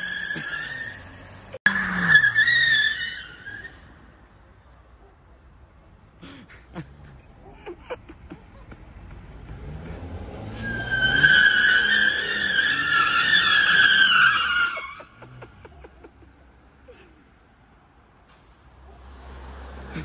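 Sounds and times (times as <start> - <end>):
tyres squealing: 0.0 - 4.0, 9.7 - 16.0
car engine revving: 8.7 - 13.6.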